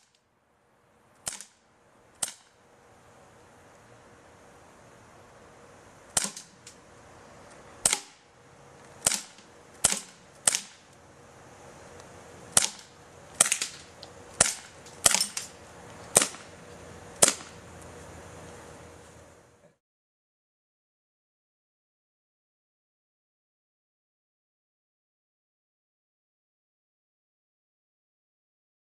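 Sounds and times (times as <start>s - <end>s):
bb guns firing: 1.2s - 1.6s, 6.1s - 6.8s, 7.8s - 8.3s, 9.0s - 10.9s, 12.5s - 16.6s, 17.2s - 17.6s.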